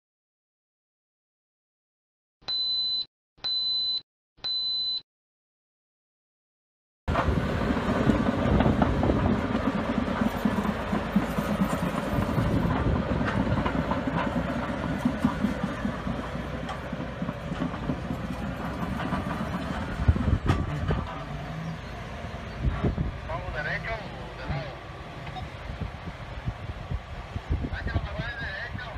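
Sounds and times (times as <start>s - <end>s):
steel tracks clanking: 7.1s - 26.4s
diesel engine running: 7.1s - 28.9s.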